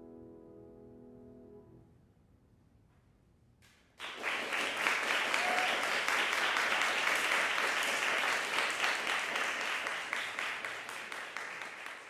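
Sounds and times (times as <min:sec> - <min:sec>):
audience applauding: 0:04.0 - 0:12.0.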